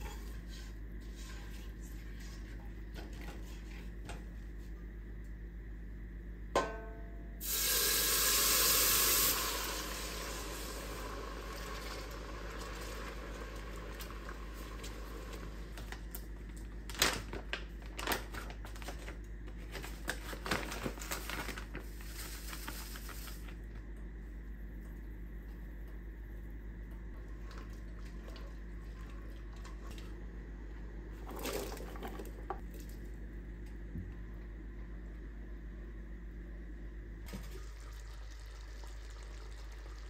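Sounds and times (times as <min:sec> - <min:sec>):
loud sizzling hiss: 0:07.4 - 0:12.4.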